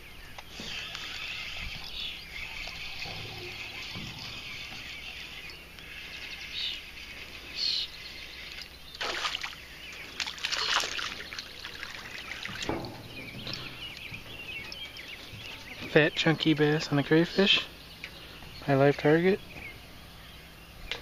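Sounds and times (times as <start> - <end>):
fish splashing at water surface: 8.4 - 13.8.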